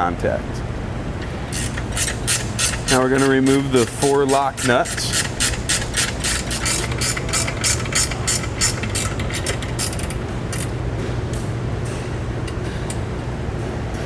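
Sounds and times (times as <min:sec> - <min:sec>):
ratchet wrench clicking: 0:01.5 - 0:10.7.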